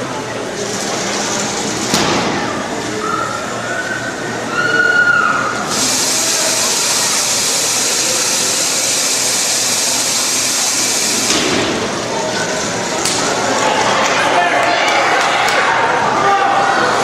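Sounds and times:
robot drive motors whining: 5.6 - 11.3
loud steady hiss: 5.6 - 12.2.

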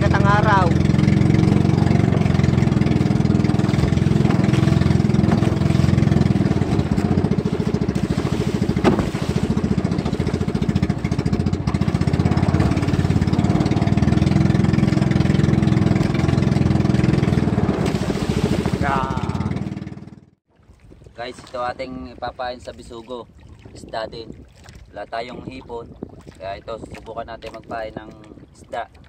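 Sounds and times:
boat engine running: 0.0 - 29.0
sharp knock: 8.8 - 9.1.

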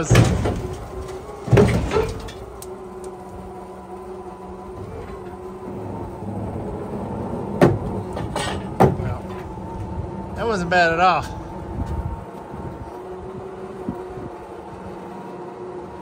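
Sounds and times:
metal flatbed clunking: 0.0 - 2.6, 7.4 - 10.0.

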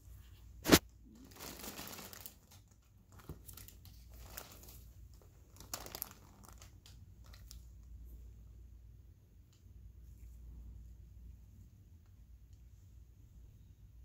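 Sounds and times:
gloved hands crinkling gauze: 0.6 - 7.9.

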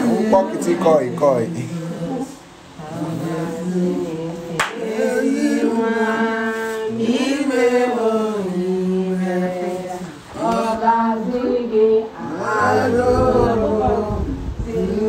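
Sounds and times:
people singing together: 0.0 - 15.0.

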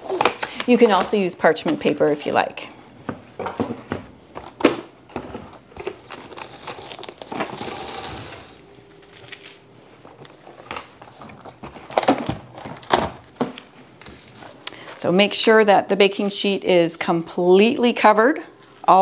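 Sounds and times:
cling wrap crinkling: 5.6 - 14.7.

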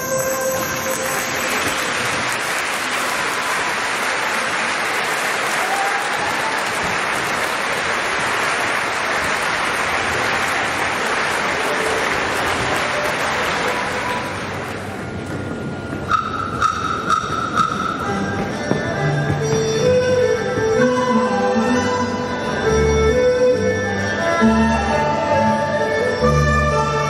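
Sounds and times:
audience applauding: 0.6 - 14.8
held music notes: 11.4 - 27.0.

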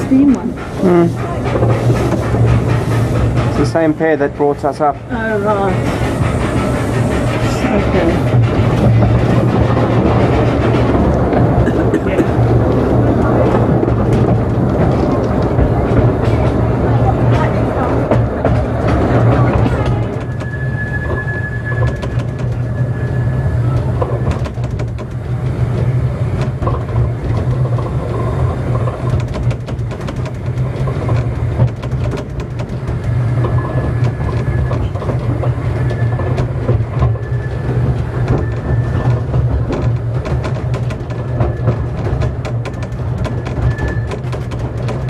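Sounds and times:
train wheels rumbling: 0.0 - 45.0
faint high squeal: 20.2 - 24.5.

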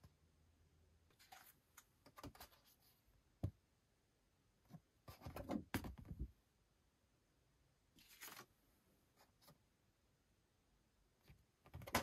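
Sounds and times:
card being handled and shuffled: 1.1 - 3.0, 8.0 - 8.6.

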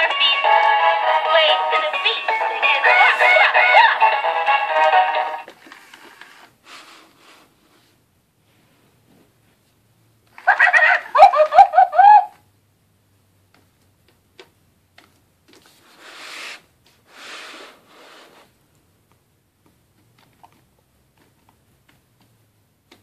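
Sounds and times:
soft hissing: 15.6 - 18.6.

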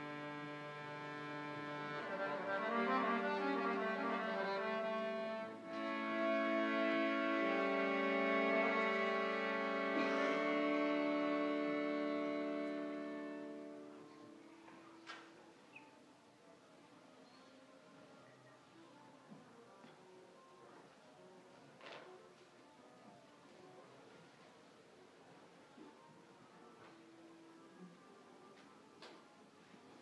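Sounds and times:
accordion playing: 0.0 - 14.4.

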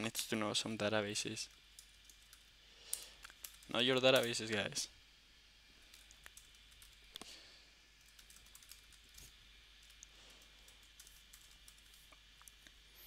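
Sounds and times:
computer keyboard keystrokes: 8.0 - 9.2, 10.7 - 12.0.

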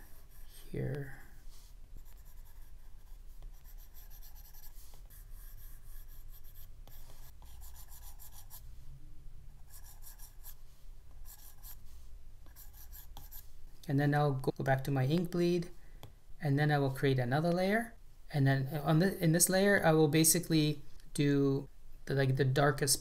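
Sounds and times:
stylus scratching on tablet screen: 2.0 - 8.6, 9.6 - 10.6, 11.2 - 11.8, 12.4 - 13.5.

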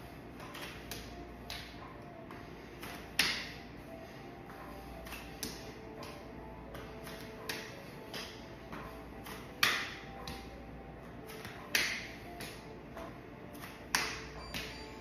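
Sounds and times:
hand slapping bare knee: 0.5 - 1.8, 2.8 - 3.6, 5.0 - 10.6, 11.3 - 12.7, 13.5 - 14.7.

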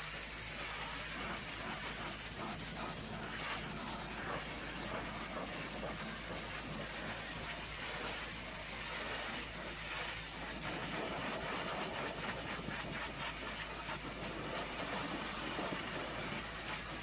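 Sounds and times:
pressure washer spray hiss: 0.0 - 17.0.

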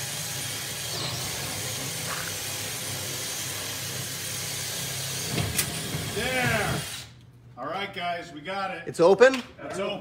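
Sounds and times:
cordless drill whining: 0.0 - 7.2.

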